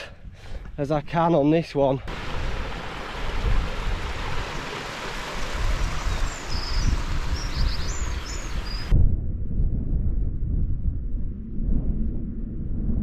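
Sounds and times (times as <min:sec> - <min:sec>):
stream rushing over rocks: 0:02.1 - 0:08.9
bird chirping: 0:04.4 - 0:08.9.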